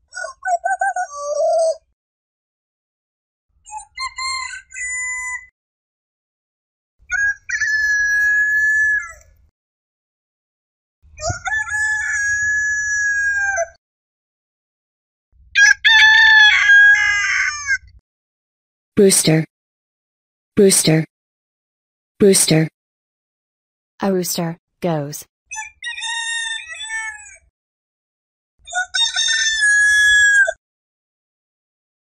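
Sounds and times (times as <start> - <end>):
rooster crowing: 15.6 - 17.6.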